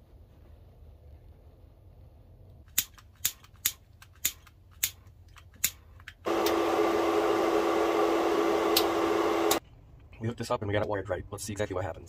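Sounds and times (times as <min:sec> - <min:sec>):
handheld tool clicking: 0:02.7 - 0:06.6
tool running with hiss and hum: 0:06.3 - 0:09.6.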